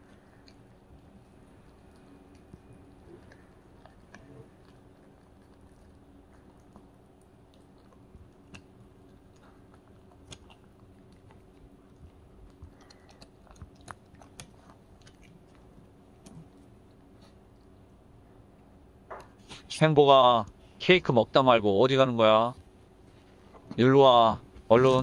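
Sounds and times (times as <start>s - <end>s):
puppy chewing: 0.0s - 18.0s
steady low hum: 0.0s - 25.0s.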